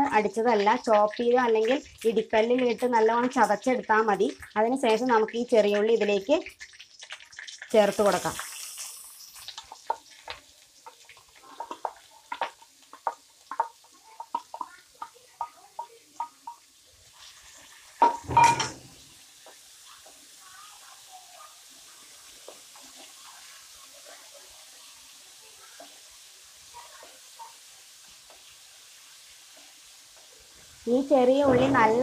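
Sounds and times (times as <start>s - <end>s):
shallots frying in oil: 0.0s - 32.0s
spatula clattering against wok: 11.6s - 16.7s.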